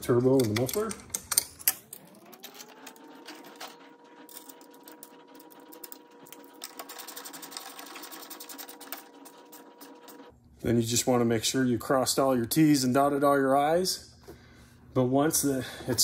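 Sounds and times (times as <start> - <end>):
rapid clicking: 2.4 - 10.3.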